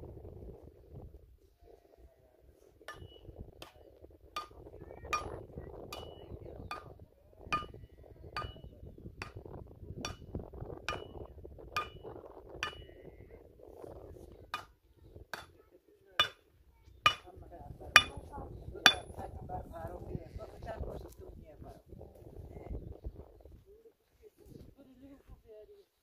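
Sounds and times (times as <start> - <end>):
hammer striking metal: 11.8 - 12.0, 16.2 - 16.4, 17.1 - 17.3, 18.0 - 18.3, 18.9 - 19.1.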